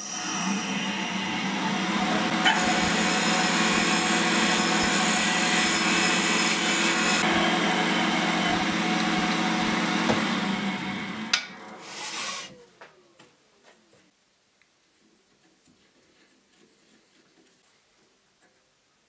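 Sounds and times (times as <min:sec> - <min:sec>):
drill boring through wood: 0:00.0 - 0:12.6
wood lathe running: 0:00.0 - 0:12.6.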